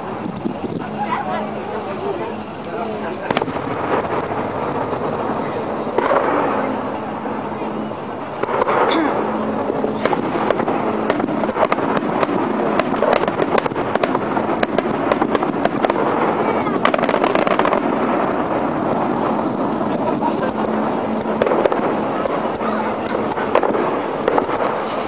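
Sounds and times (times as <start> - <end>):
continuous rumble: 0.0 - 25.0
fireworks bangs and crackling: 0.0 - 25.0.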